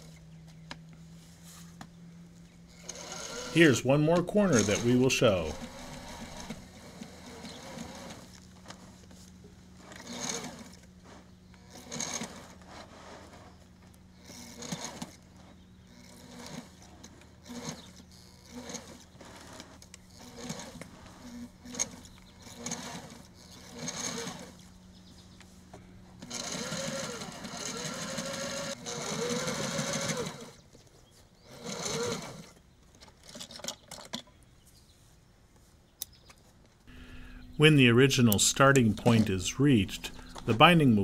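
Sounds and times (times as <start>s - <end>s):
steady low hum: 0.0s - 14.4s, 36.8s - 41.0s
sewing machine stitching: 2.8s - 9.0s, 9.8s - 13.6s, 14.2s - 15.2s, 15.9s - 24.6s, 26.2s - 30.6s, 31.5s - 32.6s.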